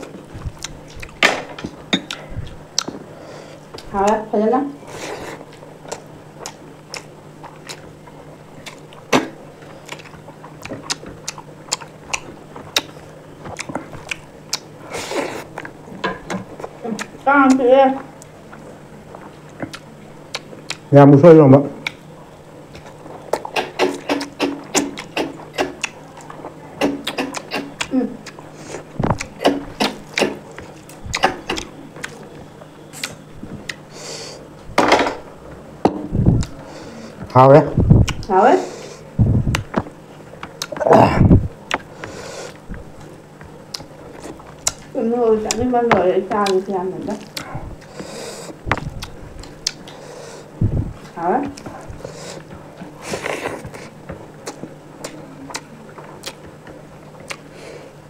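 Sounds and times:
chewing clicks and wet smacks: 0.6s - 1.2s, 5.5s - 9.2s, 9.8s - 14.7s, 15.5s - 20.9s, 21.8s - 22.0s, 22.7s - 28.4s, 29.1s - 33.8s, 38.0s - 38.3s, 39.5s - 40.8s, 42.5s - 45.6s, 46.3s - 48.0s, 48.7s - 50.0s, 53.6s - 57.5s
chewing clicks: 9.8s - 14.7s, 19.4s - 20.9s, 22.7s - 28.4s, 43.4s - 45.6s, 46.3s - 47.9s, 57.2s - 57.5s.

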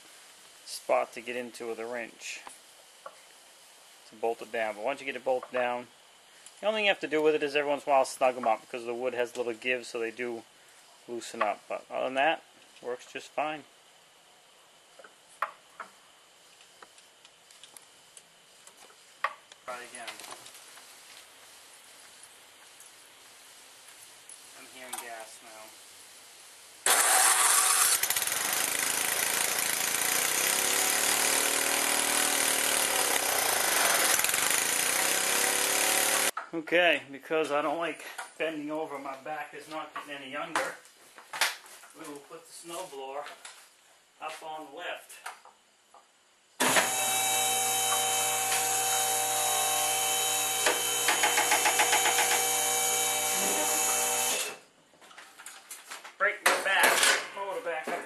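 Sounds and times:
lift table motor humming: 26.9s - 36.3s, 46.6s - 54.6s
small engine running: 26.9s - 36.3s, 46.6s - 54.6s.

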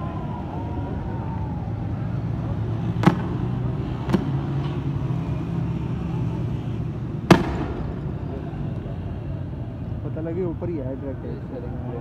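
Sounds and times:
street noise rumble: 0.0s - 12.0s
sharp bangs: 7.2s - 8.5s.

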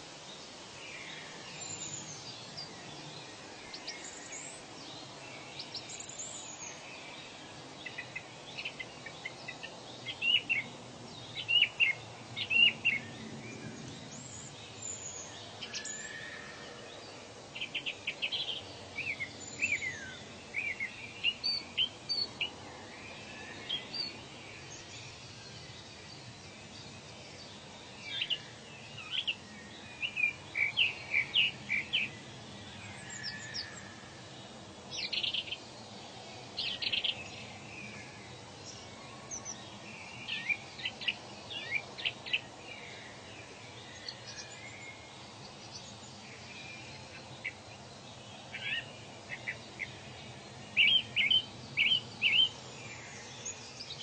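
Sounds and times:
faint outdoor hiss: 0.0s - 54.0s
birds chirping and whistling: 50.8s - 52.6s.

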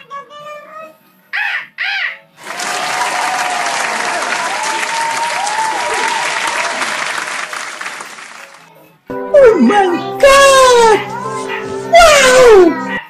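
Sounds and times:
crowd clapping and cheering: 2.4s - 8.8s.

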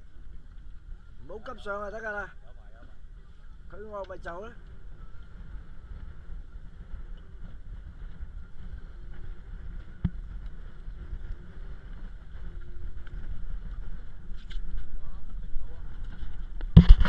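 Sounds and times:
wind buffeting microphone: 0.0s - 17.0s
sharp knock: 16.8s - 17.0s.

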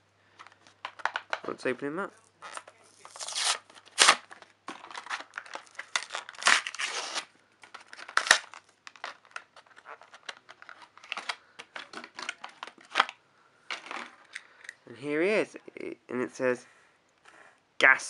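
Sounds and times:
plastic packaging crinkling: 2.3s - 13.2s
packaging tearing: 2.4s - 13.2s.

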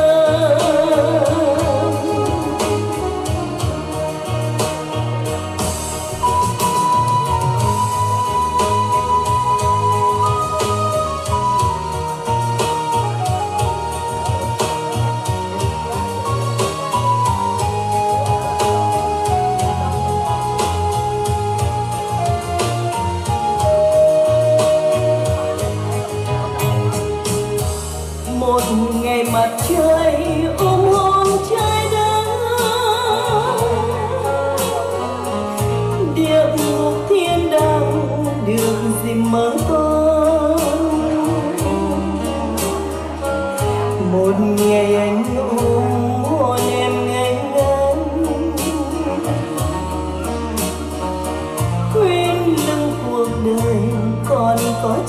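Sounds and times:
woman singing with vibrato: 0.0s - 4.6s, 28.3s - 50.4s, 51.6s - 55.0s
instrumental accompaniment with bass: 0.0s - 55.0s.

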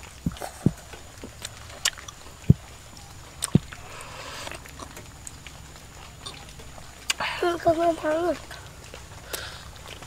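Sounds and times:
soft low thuds: 0.0s - 3.8s
mouth clicks: 0.2s - 2.7s, 3.4s - 5.4s
slurping soup: 3.4s - 5.0s.

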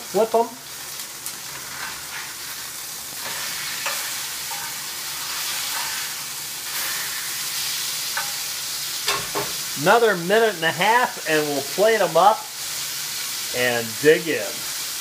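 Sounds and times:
steaks sizzling in a pan: 0.0s - 15.0s.

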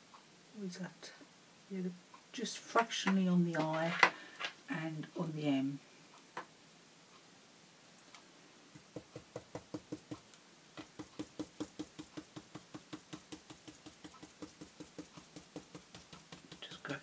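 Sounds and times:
brush tapping on stencil: 8.8s - 17.0s.

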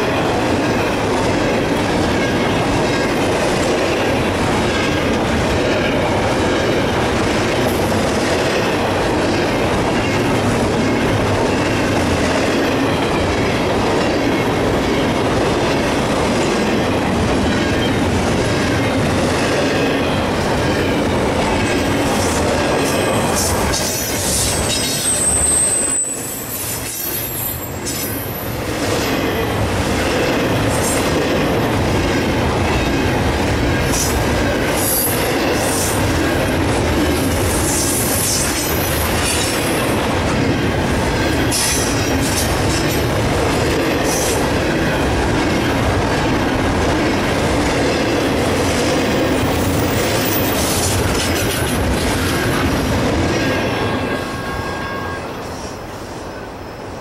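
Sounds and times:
freight train wheels rumbling: 0.0s - 57.0s
high-pitched wheel squeal: 24.5s - 28.2s.

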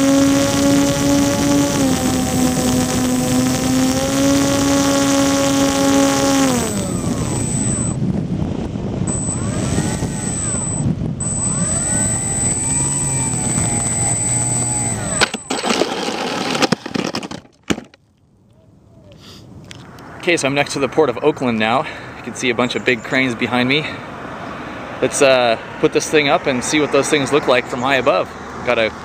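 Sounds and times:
electric model plane motors: 0.0s - 8.0s, 8.9s - 17.4s
plane touching down on asphalt: 0.0s - 17.4s.

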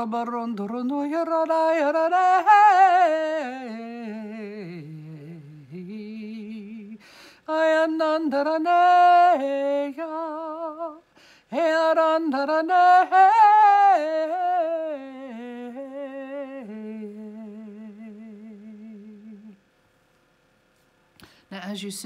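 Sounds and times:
woman singing unaccompanied: 0.0s - 19.6s.

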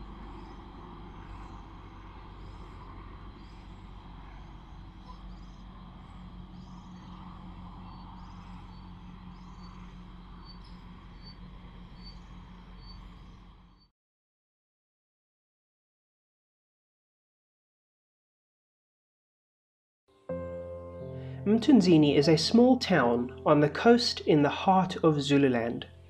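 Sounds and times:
steady low hum: 0.0s - 13.9s.

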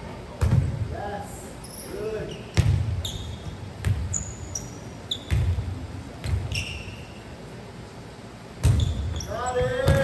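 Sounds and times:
volleyball thumps: 0.4s - 0.8s, 2.6s - 3.0s, 5.2s - 6.5s, 8.6s - 10.0s
sneaker squeaks on gym floor: 1.6s - 7.3s, 8.6s - 10.0s.

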